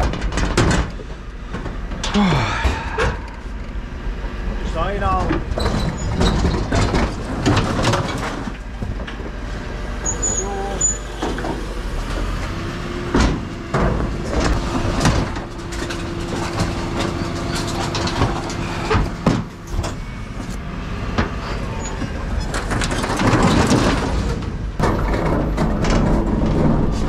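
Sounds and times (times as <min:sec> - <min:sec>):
bin clanking and banging: 0:00.0 - 0:03.2, 0:05.2 - 0:09.2, 0:13.0 - 0:20.1, 0:22.4 - 0:27.0
truck engine running: 0:00.9 - 0:22.4
hydraulic bin lift: 0:05.4 - 0:27.0.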